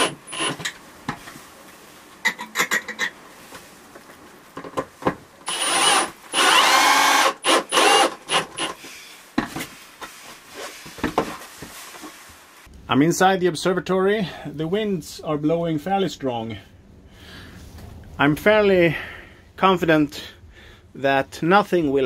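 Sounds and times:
scraping and rubbing: 9.5s - 12.6s.

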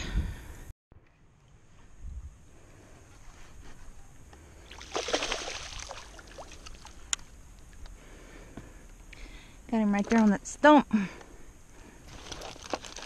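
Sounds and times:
fish splashing at water surface: 4.7s - 7.0s.

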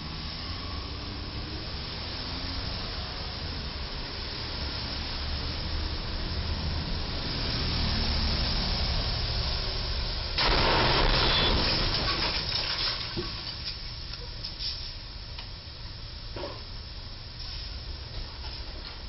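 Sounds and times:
traffic hiss on wet road: 0.0s - 19.0s
truck crashing into steel beam: 10.4s - 13.6s
scattered metal clatter: 10.4s - 13.9s.

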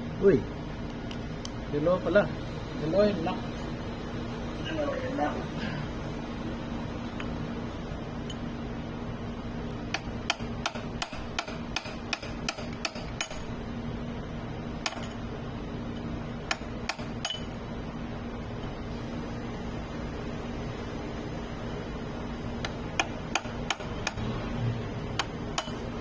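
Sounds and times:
hammer tapping steel punch: 9.9s - 13.5s, 14.8s - 15.2s, 16.4s - 17.6s, 22.6s - 24.2s, 25.2s - 25.9s.

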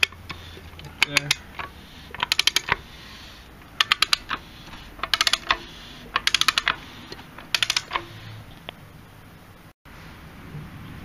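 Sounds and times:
socket ratchet clicking: 0.0s - 8.3s.

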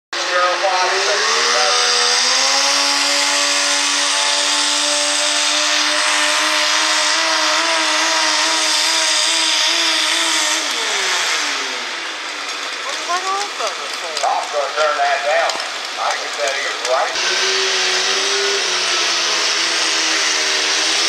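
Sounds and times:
tractor engine at full throttle: 0.1s - 21.0s.

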